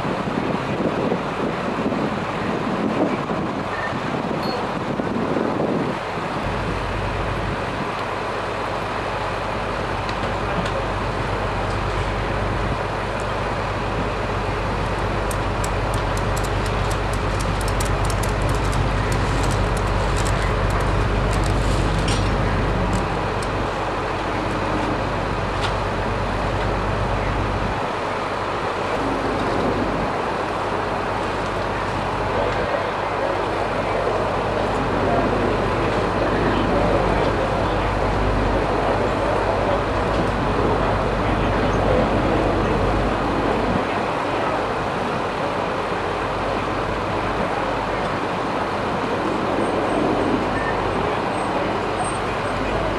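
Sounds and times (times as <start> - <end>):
street traffic: 0.0 - 52.9
idling vehicle engines: 6.2 - 52.9
faint clicks: 14.8 - 23.6.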